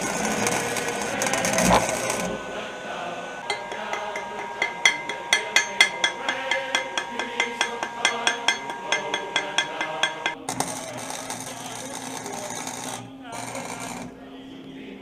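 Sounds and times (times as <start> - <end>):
hammer striking steel: 3.4 - 14.2.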